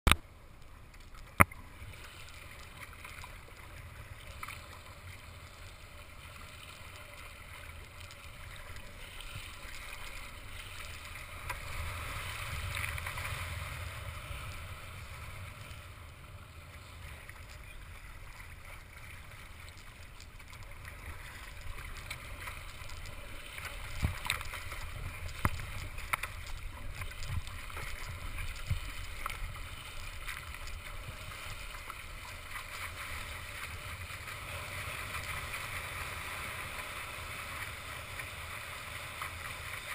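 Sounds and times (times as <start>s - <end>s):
water splashing against kayak hull: 16.8s - 39.9s.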